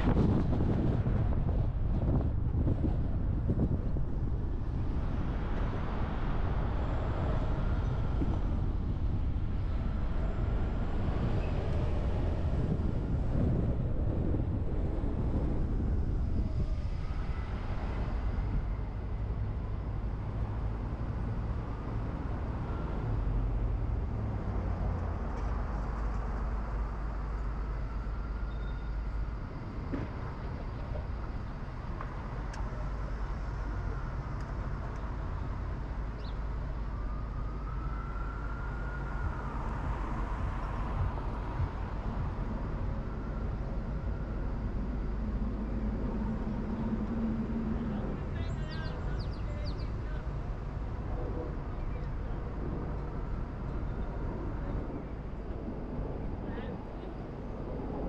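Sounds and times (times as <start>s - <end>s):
car engine and tyres rumbling: 0.0s - 58.0s
faint whine: 25.2s - 58.0s.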